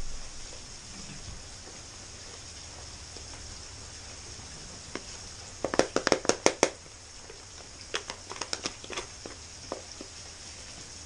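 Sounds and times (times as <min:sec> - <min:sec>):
spoon tapping plastic blender jar: 0:05.6 - 0:06.8.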